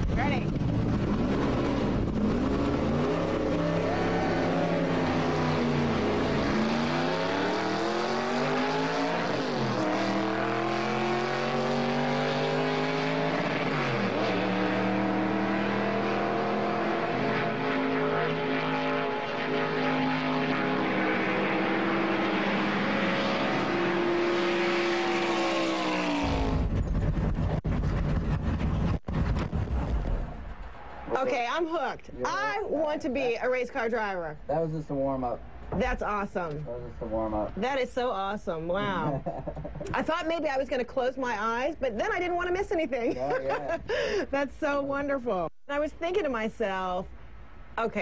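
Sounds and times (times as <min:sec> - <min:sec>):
race car engine accelerating: 0:00.0 - 0:30.4.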